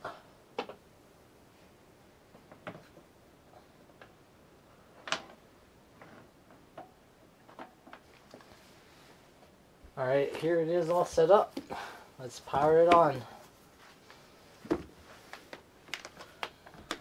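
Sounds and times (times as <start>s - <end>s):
cables and connectors clicking: 15.3s - 17.0s.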